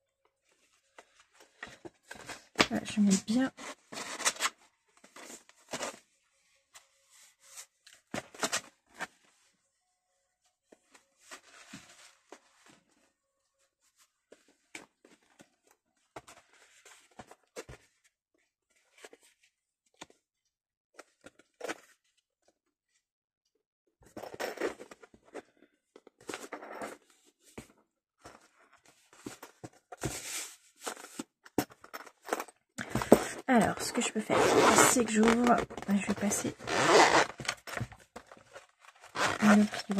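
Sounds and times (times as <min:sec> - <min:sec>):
paper rustling and crinkling: 0:00.4 - 0:09.5, 0:28.3 - 0:33.4, 0:35.0 - 0:39.9.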